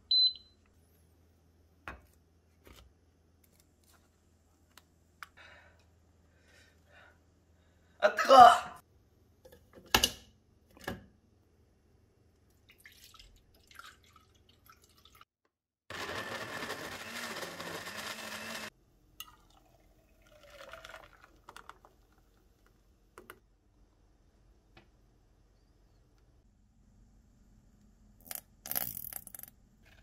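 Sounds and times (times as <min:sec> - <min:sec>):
blender running: 0:15.9 - 0:18.7.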